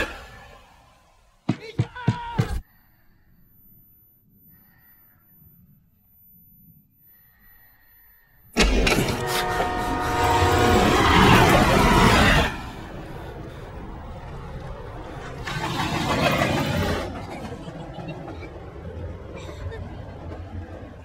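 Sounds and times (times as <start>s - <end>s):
train passing at speed: 8.6s - 21.0s
train horn: 8.8s - 13.0s.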